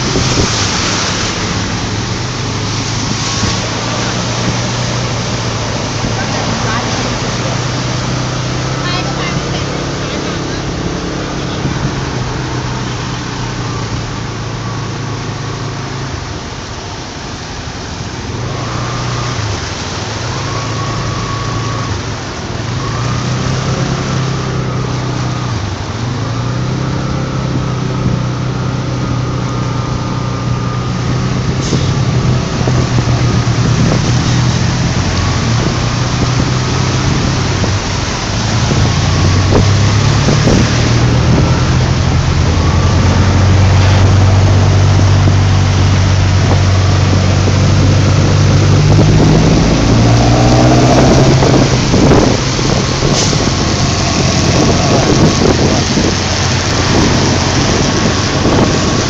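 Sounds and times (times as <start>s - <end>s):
vehicle engines revving: 0.0s - 59.0s
hiss of water spray: 31.5s - 41.0s.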